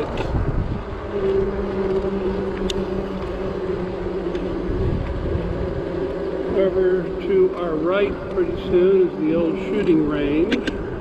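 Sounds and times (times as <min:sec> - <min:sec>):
steady low hum: 0:00.0 - 0:11.0
wind rushing over microphone: 0:00.0 - 0:11.0.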